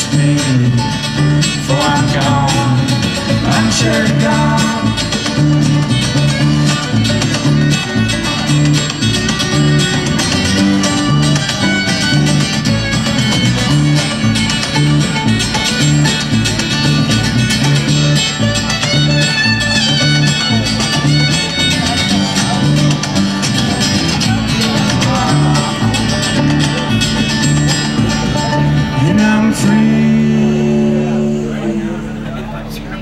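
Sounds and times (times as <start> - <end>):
banjo picking: 0.0 - 33.0
pulsing bass line: 0.0 - 33.0.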